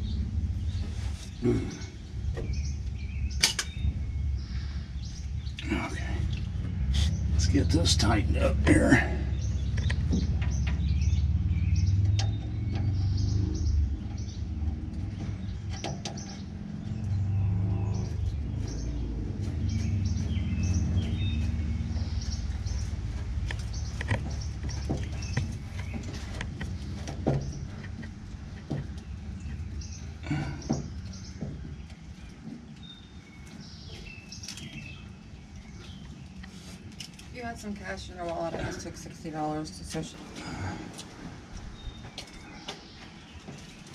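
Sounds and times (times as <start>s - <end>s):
low rumble: 0.0s - 33.4s
birds chirping: 0.0s - 43.9s.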